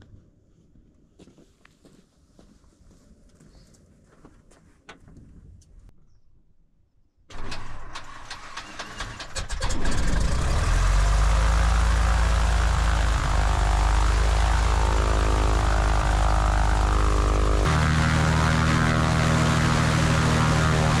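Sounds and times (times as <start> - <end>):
engine starter cranking: 7.3 - 11.1
propeller engine running: 9.5 - 21.0.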